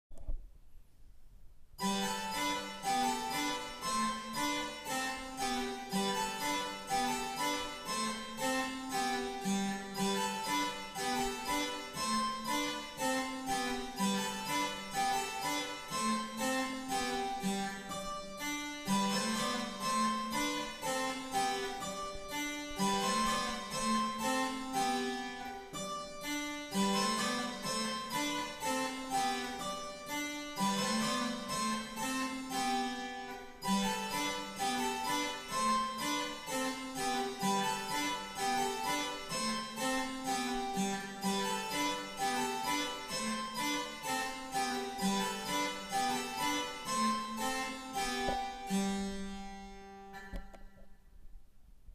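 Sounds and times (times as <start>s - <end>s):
harpsichord playing: 1.8s - 50.5s.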